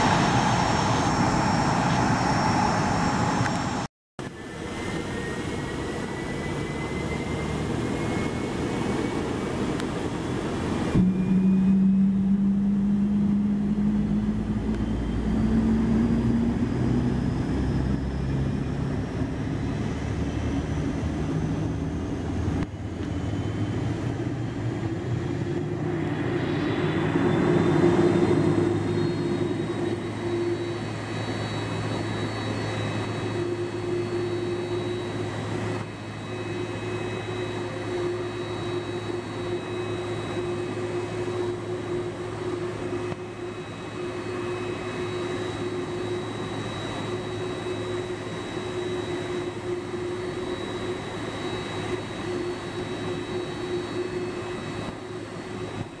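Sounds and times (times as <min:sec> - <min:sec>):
high rising engine whines: 0:00.0 - 0:56.0
jet engines humming: 0:00.0 - 0:56.0.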